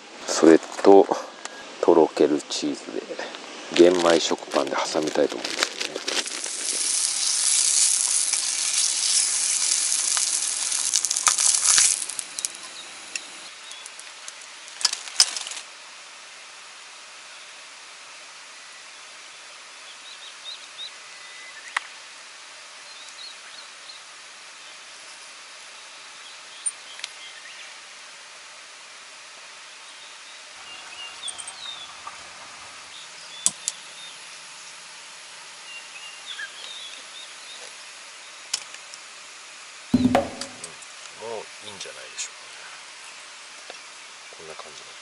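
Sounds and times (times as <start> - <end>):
outdoor background hiss: 0.0 - 45.0
small birds chirping: 6.6 - 14.0.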